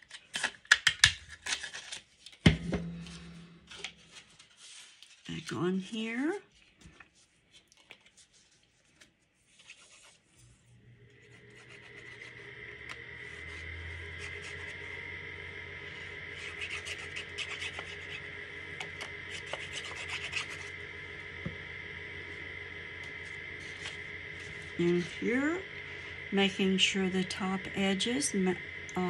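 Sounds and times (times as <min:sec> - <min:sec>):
hum with high whine: 0:02.5 - 0:04.7, 0:05.3 - 0:06.5, 0:10.3 - 0:29.0.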